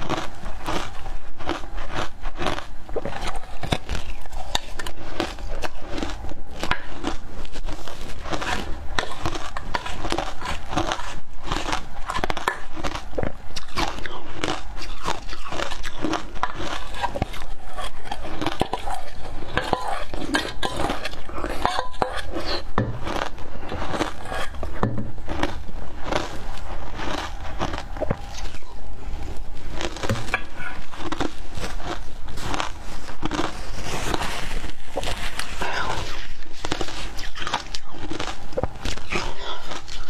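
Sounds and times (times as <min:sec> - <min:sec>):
ice crunching between teeth: 0:00.0 - 0:40.0.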